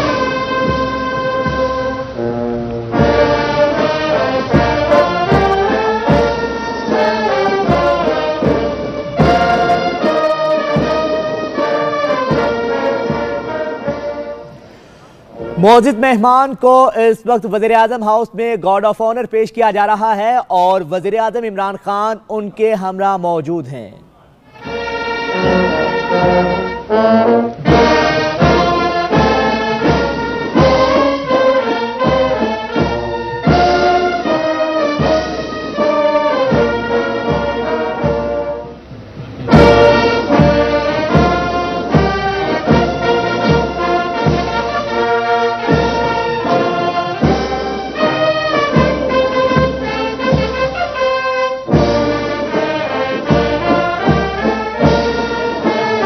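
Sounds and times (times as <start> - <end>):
steady drum beat: 0.0 - 16.3, 24.6 - 56.0
brass band playing: 0.0 - 16.4, 24.4 - 56.0.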